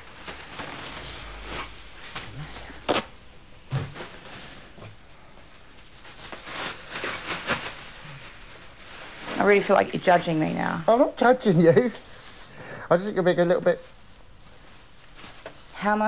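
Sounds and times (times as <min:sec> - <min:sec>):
clutter rustling and knocking: 0:03.6 - 0:07.7.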